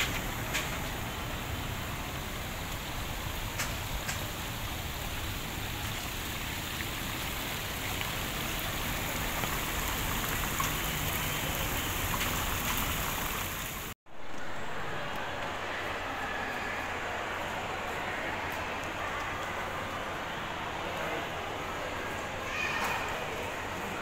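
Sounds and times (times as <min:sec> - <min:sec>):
fountain water splashing: 0:00.0 - 0:14.0.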